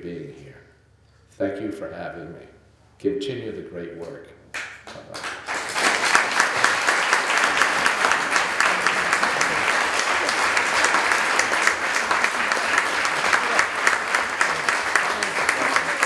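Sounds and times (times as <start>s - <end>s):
audience applauding: 4.6s - 16.0s.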